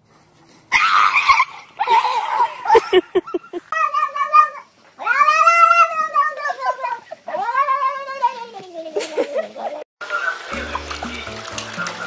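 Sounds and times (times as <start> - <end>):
animals screeching and hissing: 0.7 - 2.8
cat yowling: 3.7 - 8.5.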